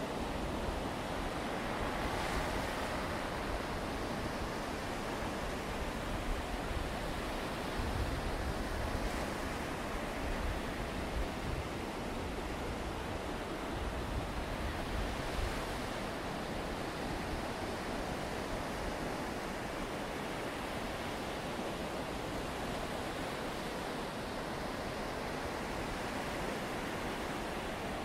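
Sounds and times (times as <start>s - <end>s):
surf washing onto shore: 0.0s - 28.0s
wind rumble on microphone: 0.4s - 16.2s.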